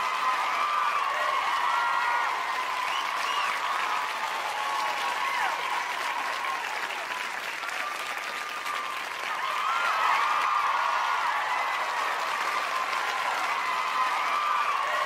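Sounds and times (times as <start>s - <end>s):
crowd applauding and cheering: 0.0s - 15.0s
whistles: 2.8s - 3.7s.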